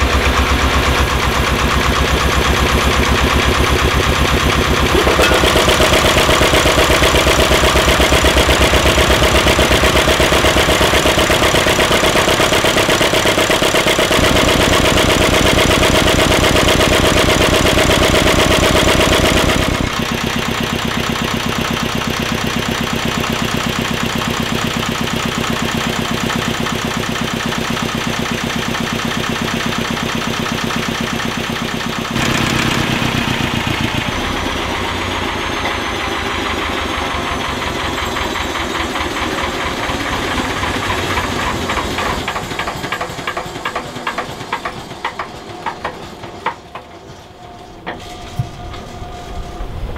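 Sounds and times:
diesel engine knocking: 0.0 - 47.0.

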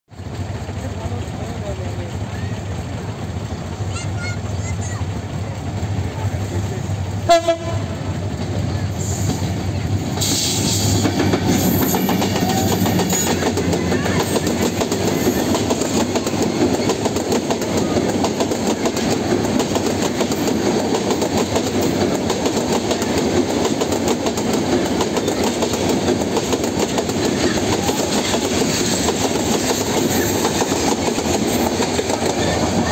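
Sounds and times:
train wheels clattering over rail joints: 8.1 - 32.9.

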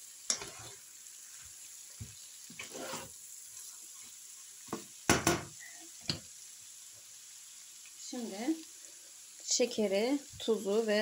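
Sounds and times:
food sizzling in a frying pan: 0.0 - 11.0
spatula scraping pan: 0.3 - 0.8, 2.5 - 4.1
spatula knocking against pan: 4.7 - 5.5.

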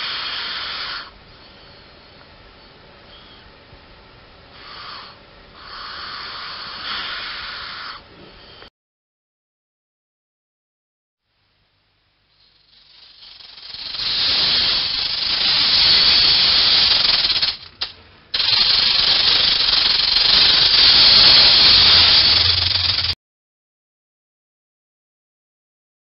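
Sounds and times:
rattlesnake tail rattling: 12.3 - 23.2.

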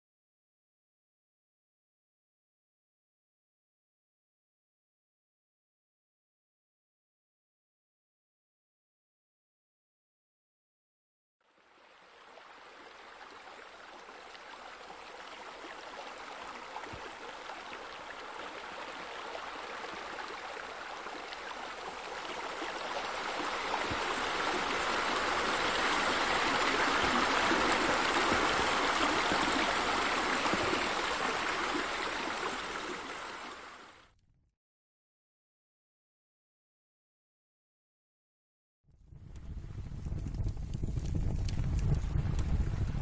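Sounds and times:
water spilling into a pool: 11.4 - 34.0.

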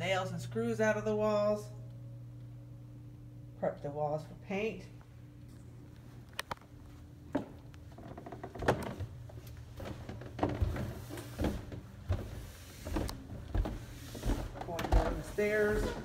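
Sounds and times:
footsteps on carpeted stairs: 6.8 - 16.0.

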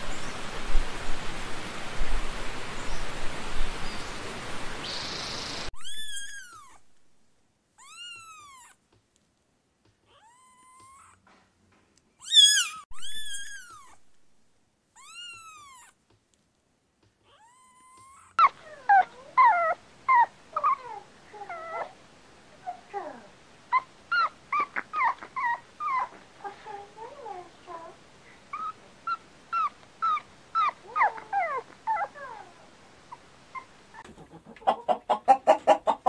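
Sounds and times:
kitten meowing: 5.8 - 6.8, 7.8 - 8.8, 10.1 - 11.2, 12.2 - 14.0, 15.0 - 16.0, 17.3 - 18.3
puppy whimpering and yelping: 5.8 - 6.8, 10.2 - 11.2, 12.2 - 14.0, 17.4 - 22.0, 22.6 - 26.2, 28.5 - 36.0.

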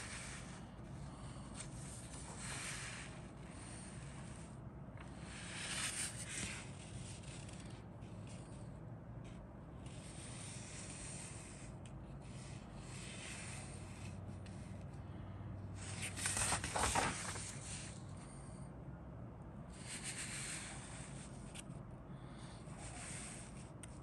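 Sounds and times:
paper rustling: 15.8 - 18.0.

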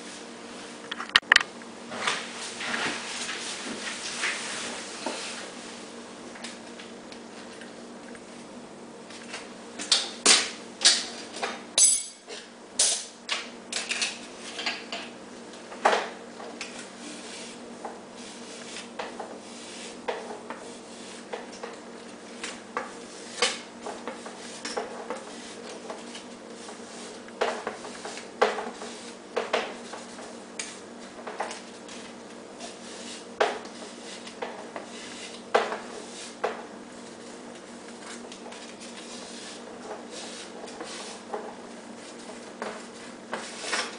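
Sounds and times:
hand tool scraping foam board: 32.6 - 37.4, 38.5 - 41.4, 42.1 - 43.9.

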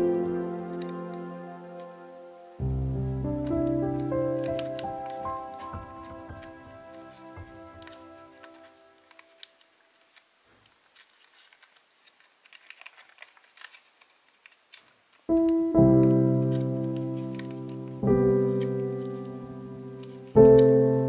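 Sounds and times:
paper folding crinkles and taps: 0.0 - 2.0, 2.6 - 21.0
background music ringing chord: 0.0 - 9.5, 15.5 - 21.0.

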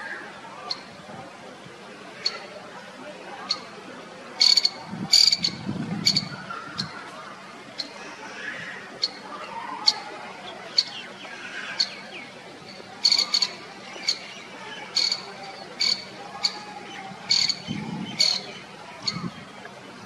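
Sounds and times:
background bird chatter: 2.2 - 2.6, 3.4 - 3.8, 4.4 - 20.0
bird chip calls: 4.4 - 7.0, 10.7 - 19.3.

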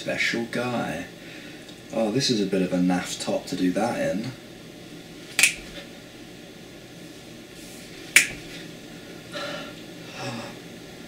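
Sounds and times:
finger snap: 5.4 - 5.8, 8.2 - 8.5.

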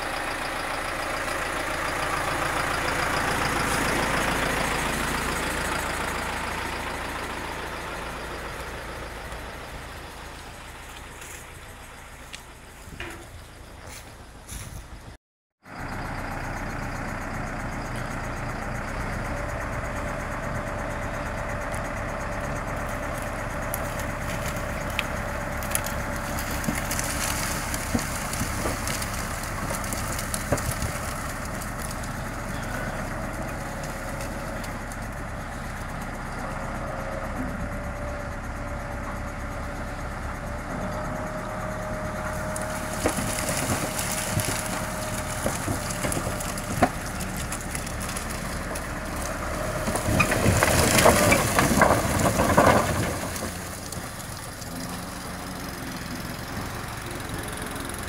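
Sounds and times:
diesel tractor engine running: 0.0 - 58.0
beets tumbling with knocks and thuds: 23.0 - 32.9, 42.6 - 55.1.

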